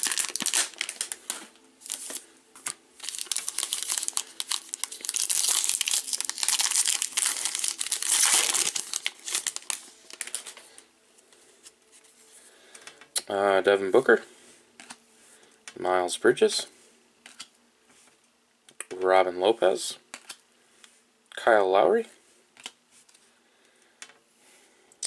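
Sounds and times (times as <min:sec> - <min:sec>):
plastic wrapper crinkling: 0:00.0 - 0:10.9.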